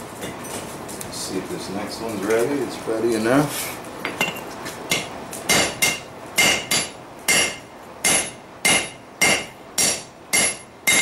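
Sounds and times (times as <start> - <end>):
hammer striking hot steel on anvil: 4.1 - 11.0.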